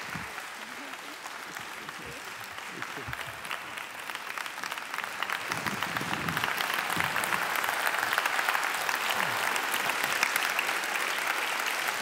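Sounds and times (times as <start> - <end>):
large audience applauding: 0.0 - 12.0.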